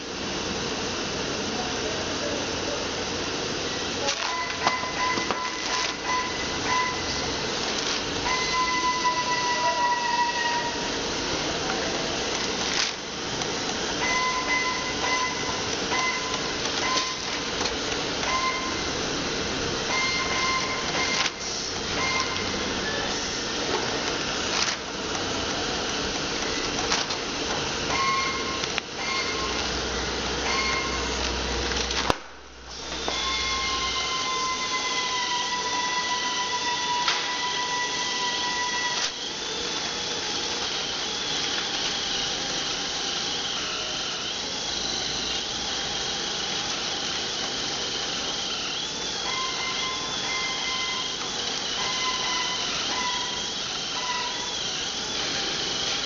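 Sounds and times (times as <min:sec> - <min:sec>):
machinery hiss and hum: 0:00.0 - 0:56.0
short high-pitched tones: 0:04.2 - 0:07.4, 0:08.2 - 0:11.0, 0:14.0 - 0:17.3, 0:18.2 - 0:19.0, 0:19.9 - 0:23.4, 0:28.0 - 0:29.6, 0:30.4 - 0:31.2, 0:33.0 - 0:39.0, 0:49.2 - 0:51.2, 0:51.8 - 0:54.5.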